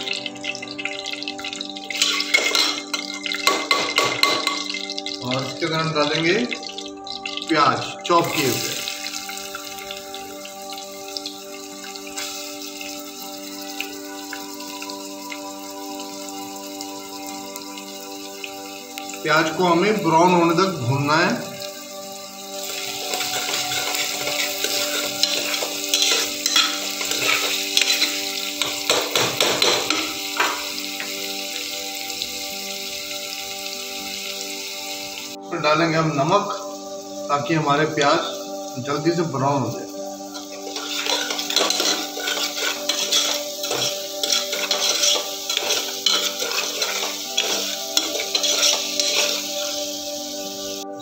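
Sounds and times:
background music: 0.0 - 51.0
onions sizzling in a pot: 0.0 - 51.0
metal spoon scraping a pot: 2.0 - 4.8, 22.7 - 30.5, 40.4 - 49.9.

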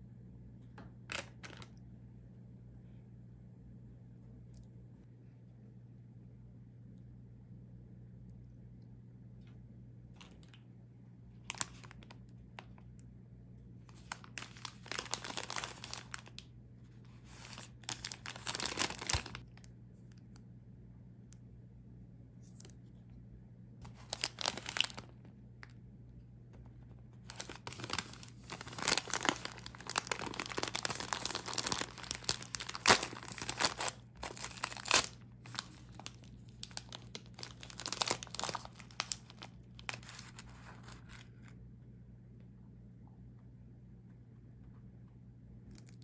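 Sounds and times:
paper bag crinkling and tearing: 11.4 - 12.7, 13.9 - 16.4, 17.1 - 19.4, 23.8 - 25.2, 27.2 - 41.4.

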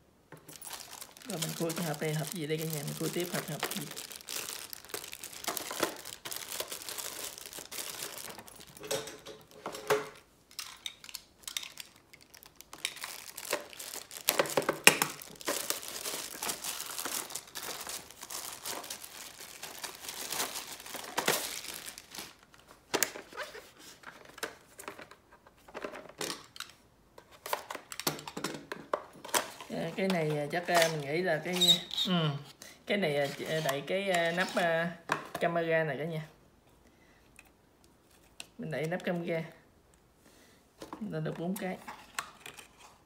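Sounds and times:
plastic packaging crinkling: 0.4 - 25.0, 29.2 - 32.2, 33.2 - 34.8.

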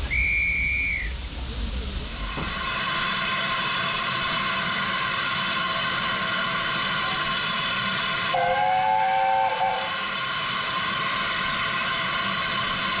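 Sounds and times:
short high whistle tone: 0.0 - 1.1
steam locomotive whistle: 0.0 - 1.1, 8.3 - 10.2
railway carriages rumbling past: 1.1 - 13.0.

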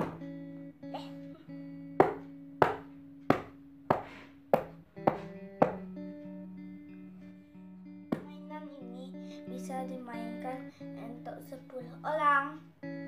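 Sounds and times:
hands slapping carpeted floor: 0.0 - 0.4, 2.0 - 6.0, 8.1 - 8.3.

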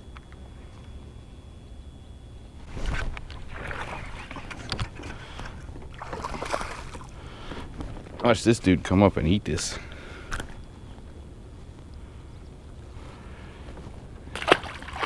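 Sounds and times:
fish splashing at water surface: 3.4 - 7.1, 14.3 - 15.0.

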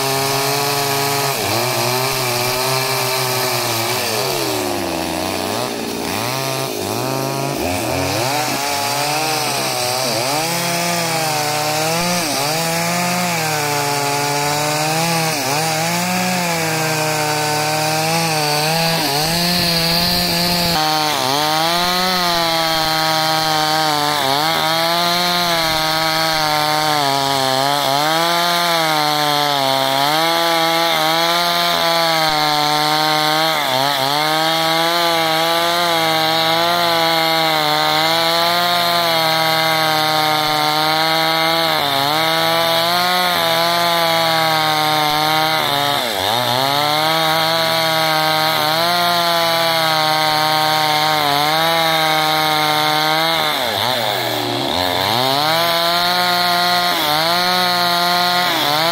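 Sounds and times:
chainsaw cutting log: 0.0 - 58.9.

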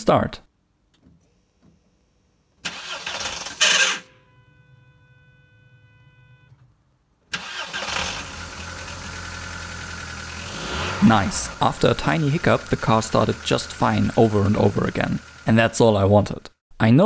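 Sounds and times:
car starter cranking: 2.6 - 4.2, 7.3 - 16.0
car engine running: 7.6 - 16.5.

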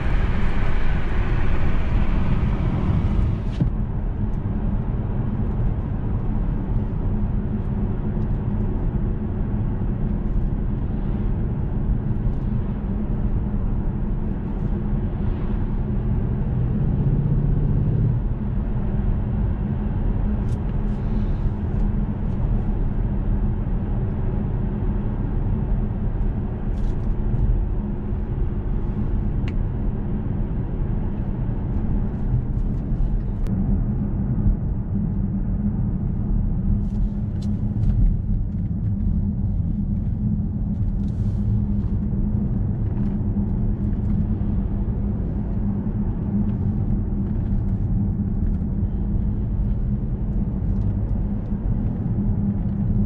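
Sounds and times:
tyre and road rumble: 0.0 - 5.4
car engine drone: 0.0 - 53.0.

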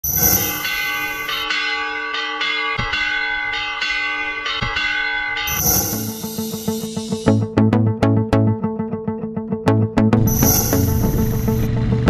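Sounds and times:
church bell ringing: 0.0 - 7.3.

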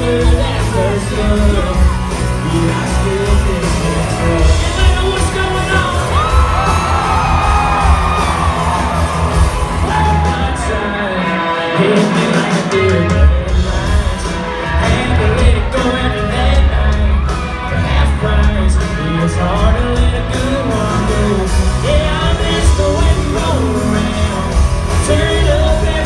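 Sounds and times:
man singing: 0.0 - 8.3, 9.8 - 26.0
heavy bass and drums: 0.0 - 11.2, 11.8 - 26.0
live country band playing: 0.0 - 26.0.

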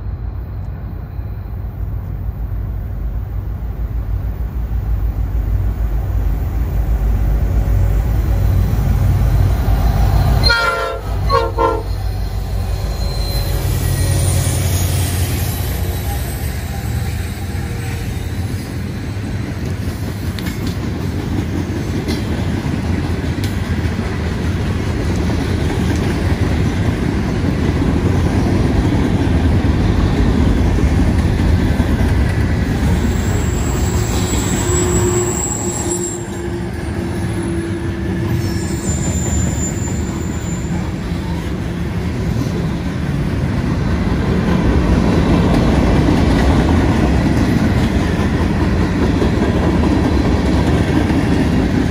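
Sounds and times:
freight train cars rolling past: 0.0 - 51.9
high-pitched wheel squeals: 9.2 - 19.6, 33.0 - 41.4.

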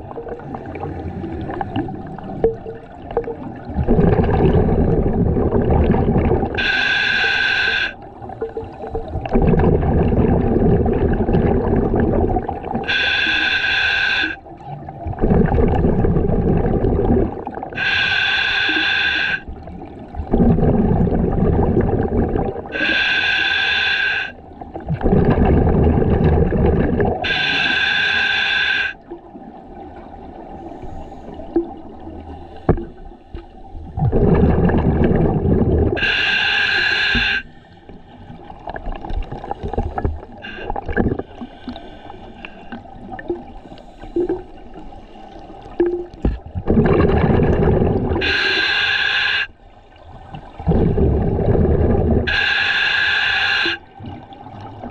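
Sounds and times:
exhaled bubbles rumbling: 0.0 - 6.8, 8.0 - 13.1, 14.4 - 18.0, 19.4 - 23.1, 24.4 - 27.5, 31.3 - 36.3, 37.1 - 48.5, 49.8 - 52.4, 53.9 - 54.9
regulator inhale hiss: 6.6 - 8.0, 12.9 - 14.4, 17.8 - 19.5, 22.8 - 24.5, 27.2 - 29.1, 30.6 - 31.7, 32.3 - 33.5, 36.0 - 38.3, 39.6 - 42.8, 48.2 - 49.6, 52.3 - 53.9.

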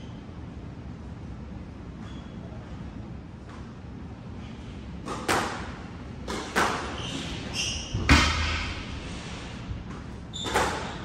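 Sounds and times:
squash ball smacking: 5.0 - 7.0
shoes squeaking on hardwood floor: 7.0 - 8.0, 10.3 - 11.0.

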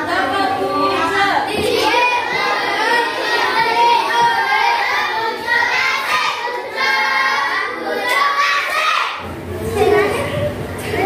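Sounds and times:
children singing: 0.2 - 11.0.

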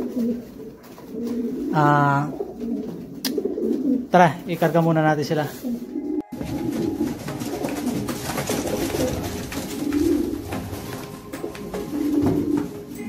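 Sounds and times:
pigeons cooing: 0.0 - 4.1, 5.5 - 13.0
wooden baskets knocking: 6.3 - 13.0.

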